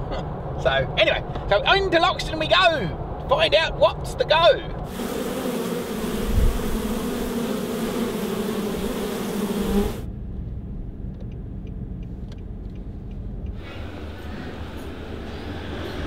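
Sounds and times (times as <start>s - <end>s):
honeybees buzzing: 4.9s - 10.1s, 13.6s - 16.0s
car rumbling on road: 10.1s - 16.0s
faint ticks: 11.1s - 13.6s.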